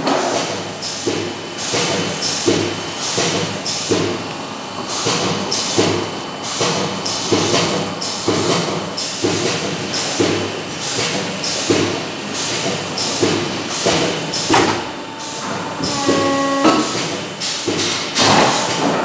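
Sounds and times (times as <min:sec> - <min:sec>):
rhythmic factory machinery: 0:00.0 - 0:19.0
workshop din: 0:00.0 - 0:19.0
short steady tone: 0:14.8 - 0:17.2.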